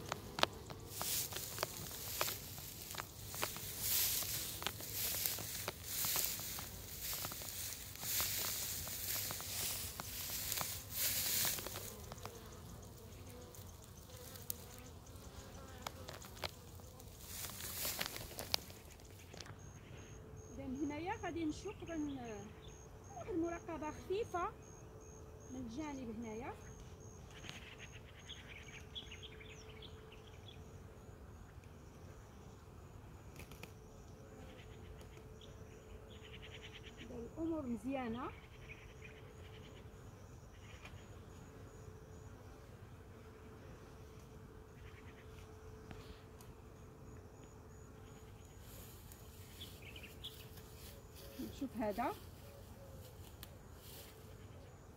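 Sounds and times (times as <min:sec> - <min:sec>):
footsteps rustling dry grass: 0:00.0 - 0:14.9, 0:15.9 - 0:19.2, 0:48.6 - 0:54.3
bees buzzing: 0:00.0 - 0:20.9
high insect chirp: 0:00.0 - 0:42.4, 0:44.6 - 0:54.9
honeybees humming: 0:00.0 - 0:54.9.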